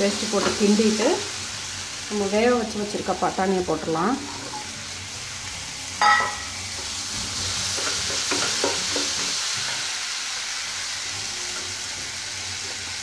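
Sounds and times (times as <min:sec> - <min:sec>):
food sizzling in a pan: 0:00.0 - 0:13.0
spatula scraping and tapping pan: 0:07.6 - 0:09.8.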